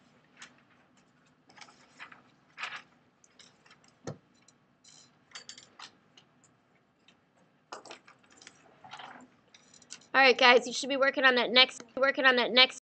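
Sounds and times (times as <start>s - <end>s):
paper rustling: 0.2s - 4.1s.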